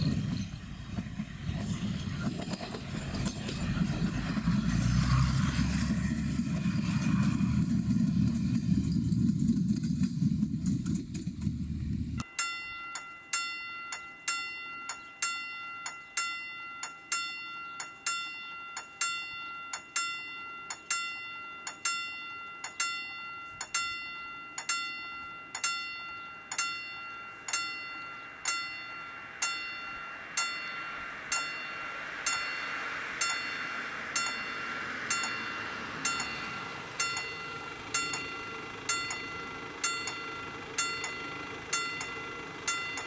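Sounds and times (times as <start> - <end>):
low engine rumble: 0.0 - 12.2, 27.2 - 43.0
level-crossing bell ringing: 12.2 - 43.0
hiss: 29.5 - 40.7.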